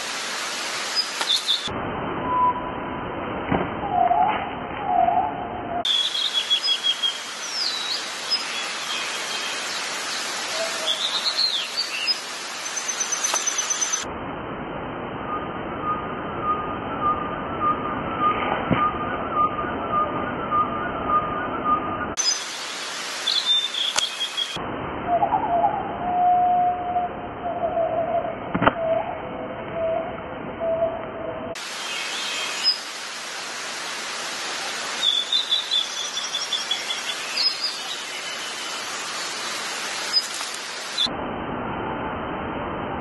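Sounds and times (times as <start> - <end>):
steady outdoor hiss: 0.0 - 43.0
small birds chirping: 0.8 - 1.7, 5.9 - 14.1, 22.2 - 24.6, 31.6 - 33.0, 34.6 - 41.1.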